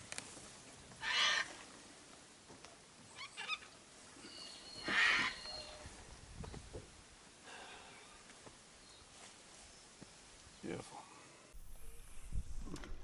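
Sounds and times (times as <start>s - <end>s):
bird calls: 3.1s - 6.6s.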